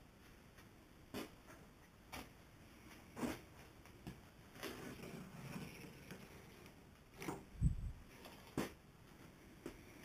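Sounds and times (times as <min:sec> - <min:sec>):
rustling scrape: 0:04.5 - 0:08.8.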